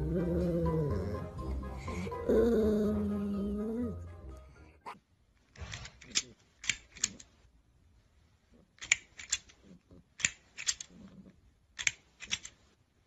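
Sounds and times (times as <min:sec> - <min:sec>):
plastic toy jaws clacking: 0:05.5 - 0:07.4, 0:08.7 - 0:12.7.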